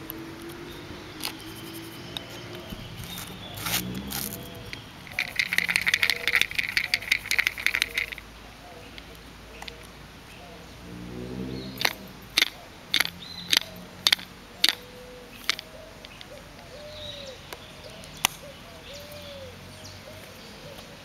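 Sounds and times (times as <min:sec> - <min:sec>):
doves cooing: 0:00.0 - 0:21.0
salt shaker clicking: 0:05.1 - 0:08.2.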